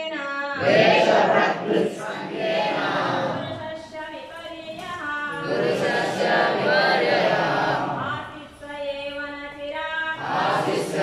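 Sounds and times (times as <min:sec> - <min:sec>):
group chanting in unison: 0:00.5 - 0:04.0, 0:05.3 - 0:08.5, 0:10.1 - 0:11.0.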